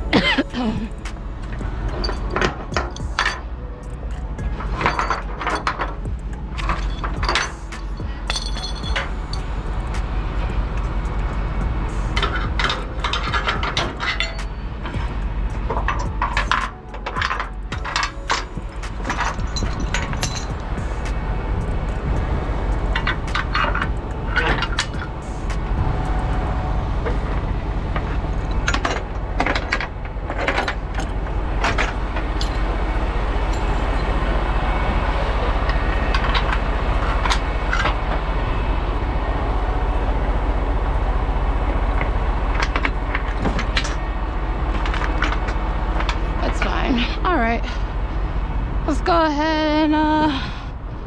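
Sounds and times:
metal chains clinking and rattling: 0.0 - 26.3, 27.0 - 34.3, 42.5 - 44.0, 44.7 - 47.8
diesel truck engine idling: 0.0 - 51.0.

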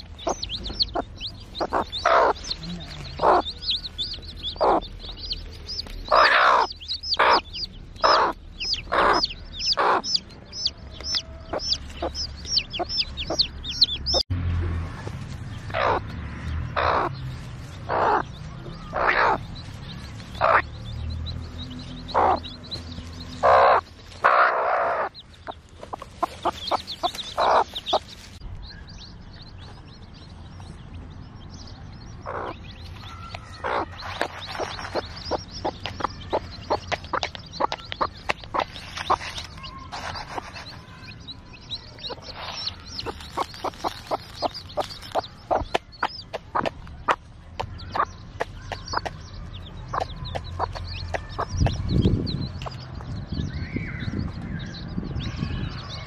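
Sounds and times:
hen clucking: 0.0 - 14.2, 15.7 - 16.1, 16.7 - 17.2, 17.9 - 19.7, 20.3 - 20.7, 22.0 - 28.3, 32.2 - 52.8.

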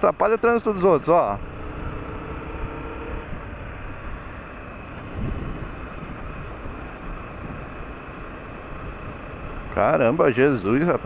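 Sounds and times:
motorcycle engine running: 0.0 - 11.0
wind noise on microphone: 5.0 - 7.8.

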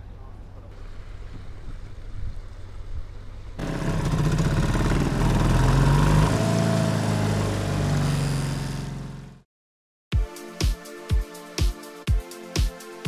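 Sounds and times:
outboard motor running: 3.6 - 9.4.

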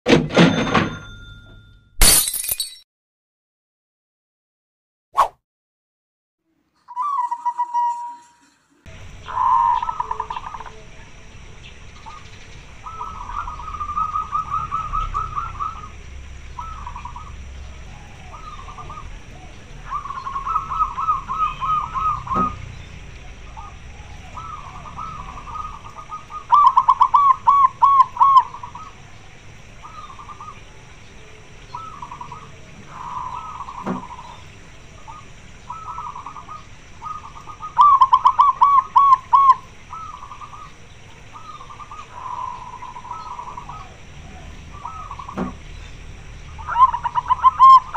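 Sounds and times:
dove cooing in staccato phrases: 9.1 - 10.9, 12.8 - 22.7, 23.3 - 29.0, 31.8 - 34.4, 35.1 - 45.7, 46.6 - 47.9.

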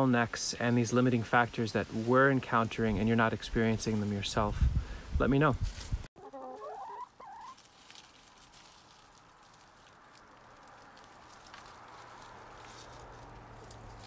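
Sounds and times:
hens rustling in leaves: 0.0 - 4.8, 5.4 - 14.0
hen clucking: 6.2 - 7.6.

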